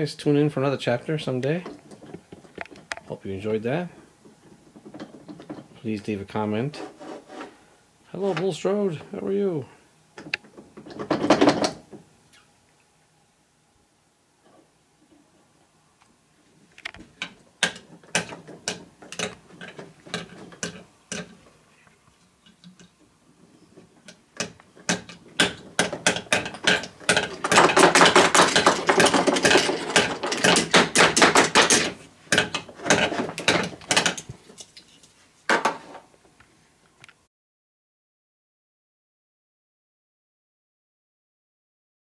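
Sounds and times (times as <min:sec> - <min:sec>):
toy pieces knocking: 0:24.4 - 0:34.2.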